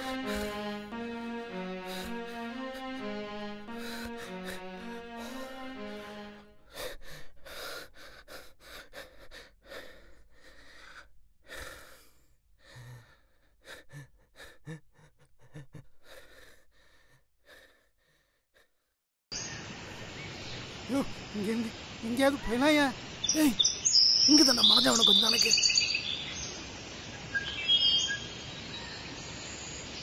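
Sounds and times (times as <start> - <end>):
sad bowed-string melody: 0.0 - 7.3
man panting heavily: 1.5 - 5.9, 6.7 - 18.8.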